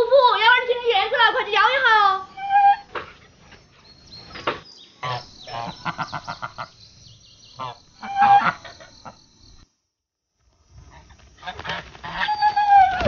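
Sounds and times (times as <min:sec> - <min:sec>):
geese honking: 0:01.6 - 0:03.0, 0:05.0 - 0:06.8, 0:07.5 - 0:09.2, 0:11.4 - 0:13.0.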